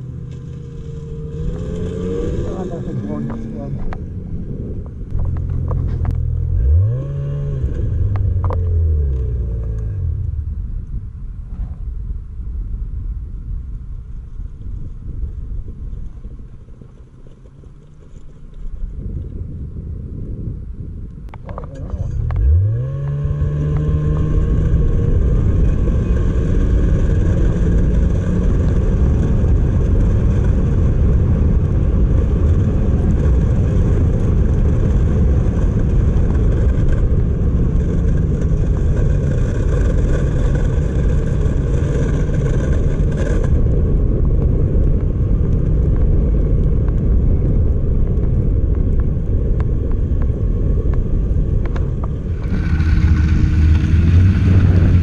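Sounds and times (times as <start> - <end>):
snowmobile engine running: 0.0 - 10.2, 21.6 - 44.8, 50.0 - 55.0.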